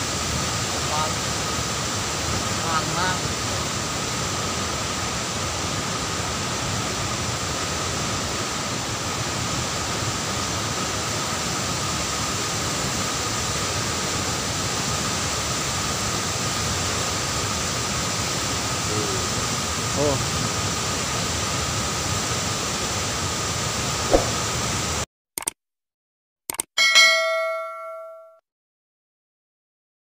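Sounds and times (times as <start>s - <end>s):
waterfall rushing: 0.0s - 10.4s.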